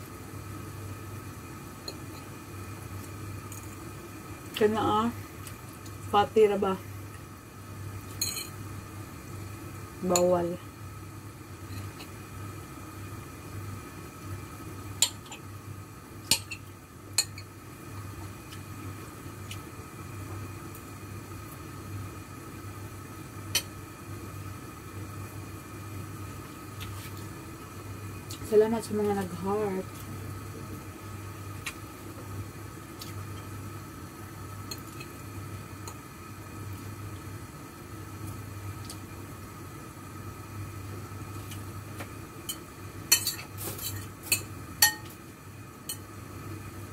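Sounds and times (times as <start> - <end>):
steady low hum: 0.0 - 46.9
kitchenware clinking: 8.2 - 8.6.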